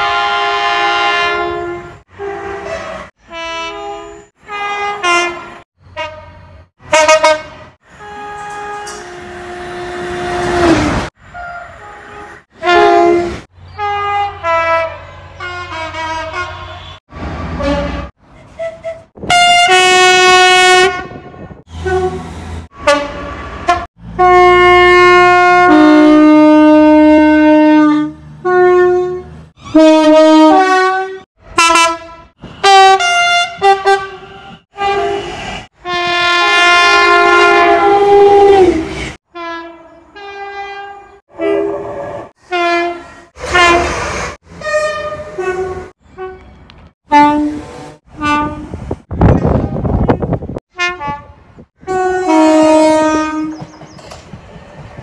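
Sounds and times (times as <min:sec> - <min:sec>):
long train horn blast: 0:00.0 - 0:18.2, 0:19.2 - 0:53.7
two-tone train horns: 0:00.0 - 0:53.8.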